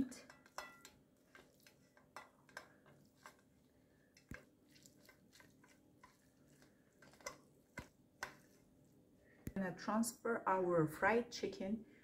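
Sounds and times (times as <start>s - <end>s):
wooden spoon stirring fried chicken: 0.0s - 9.0s.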